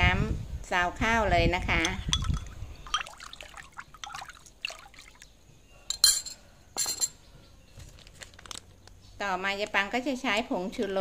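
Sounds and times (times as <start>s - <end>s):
water sloshing in a plastic basin: 1.7s - 5.5s
light clinks of metal spoon: 5.9s - 7.2s.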